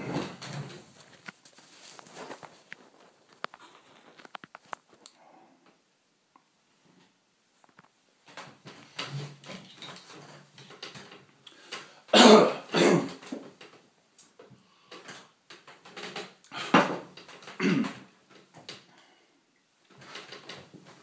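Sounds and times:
soft rustling: 0.0 - 5.1
man coughing and clearing throat: 12.1 - 13.2, 17.6 - 18.0.

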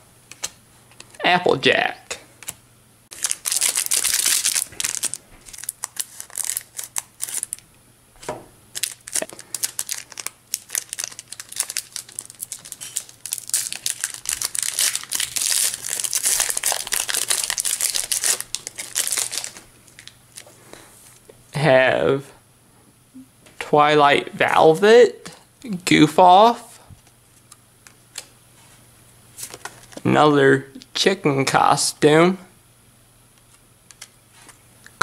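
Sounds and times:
foil wrapper crinkling: 3.1 - 7.6, 8.7 - 20.5.

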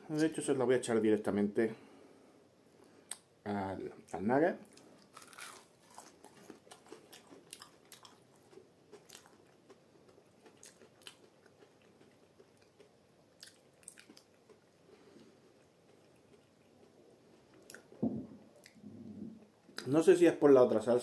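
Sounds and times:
faint crunchy chewing: 4.0 - 19.9.

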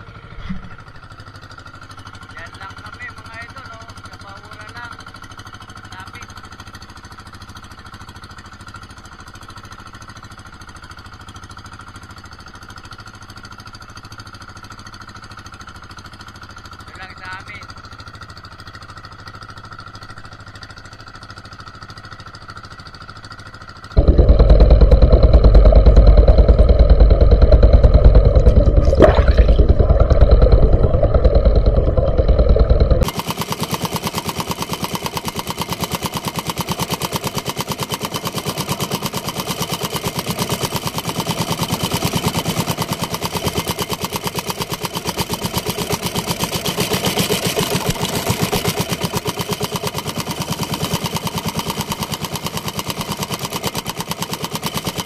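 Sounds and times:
boat engine running: 0.0 - 22.4, 23.1 - 55.0.

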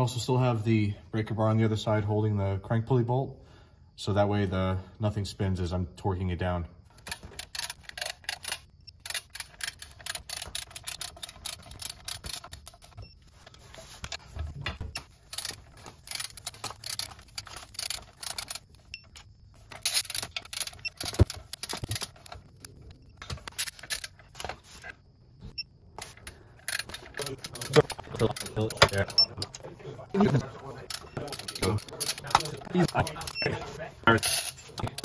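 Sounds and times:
ratcheting wrench clicking: 7.0 - 13.0, 15.2 - 22.5, 26.0 - 29.3, 34.2 - 35.0.

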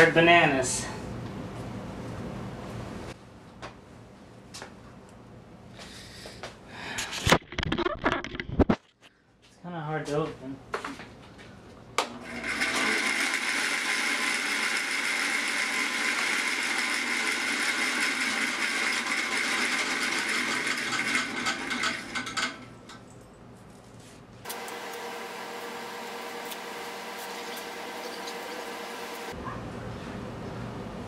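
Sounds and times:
band saw cutting: 12.2 - 22.3, 24.5 - 29.4.

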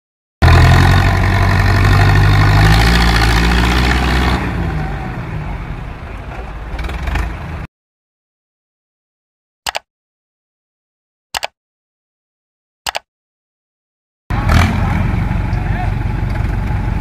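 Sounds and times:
tractor engine under load: 0.4 - 7.7, 14.3 - 17.0.

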